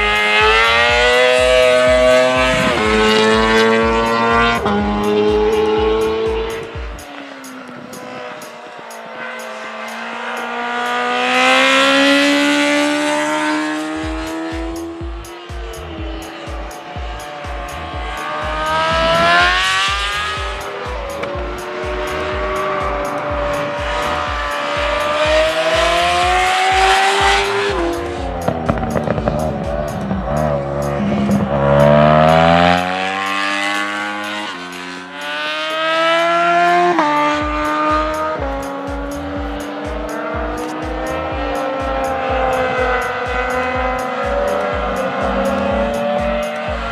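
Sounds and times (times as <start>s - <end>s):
racing engines revving past: 0.0s - 46.9s.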